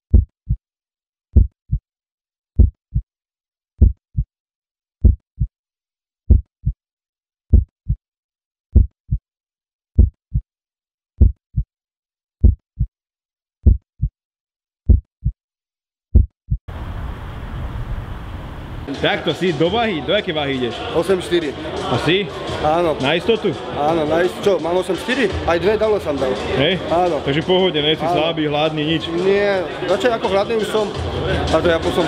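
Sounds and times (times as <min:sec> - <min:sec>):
heartbeat thumps: 0:00.1 - 0:00.6, 0:01.3 - 0:01.8, 0:02.6 - 0:03.1, 0:03.8 - 0:04.3, 0:05.0 - 0:05.5, 0:06.3 - 0:06.8, 0:07.5 - 0:08.0, 0:08.7 - 0:09.2, 0:10.0 - 0:10.5, 0:11.2 - 0:11.7, 0:12.4 - 0:12.9, 0:13.6 - 0:14.1, 0:14.9 - 0:15.4, 0:16.1 - 0:16.6.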